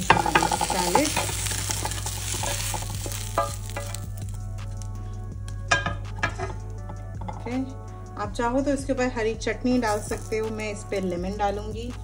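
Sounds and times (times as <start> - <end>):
spatula knocking on pan: 0.0 - 4.3, 5.7 - 7.5
spatula scraping pan: 0.0 - 4.3
vegetables sizzling in a pan: 0.0 - 4.9, 9.8 - 11.9.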